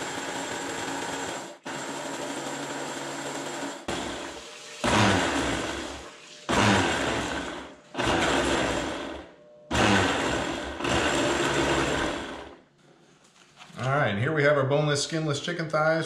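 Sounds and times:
blender blending liquid: 0.0 - 12.6.

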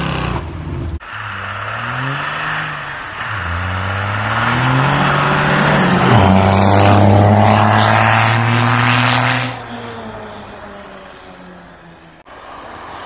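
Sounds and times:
truck engine revving hard: 0.0 - 11.2.

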